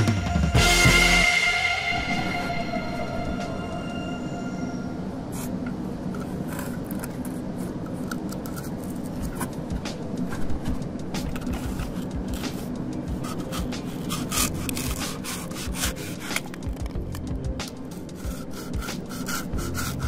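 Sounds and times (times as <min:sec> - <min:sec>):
steady low hum: 0:00.0 - 0:20.0
sanding strokes on wood: 0:12.4 - 0:16.5, 0:17.9 - 0:20.0.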